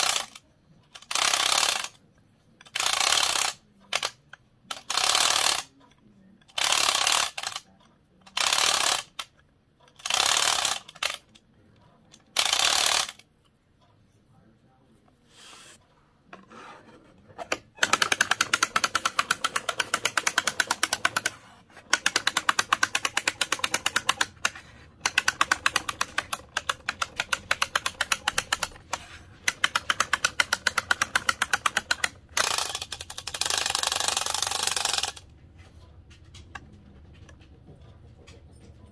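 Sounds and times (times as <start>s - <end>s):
clockwork toy clicking: 0.0s - 2.0s, 2.6s - 11.4s, 12.1s - 13.3s, 17.5s - 35.3s.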